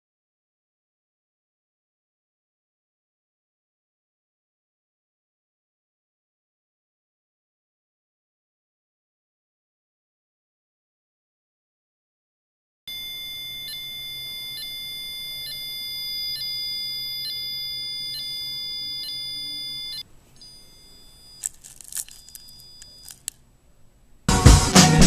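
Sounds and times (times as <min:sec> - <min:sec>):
high electronic tone: 0:12.9 - 0:23.3
candy wrappers crinkling: 0:21.3 - 0:23.4.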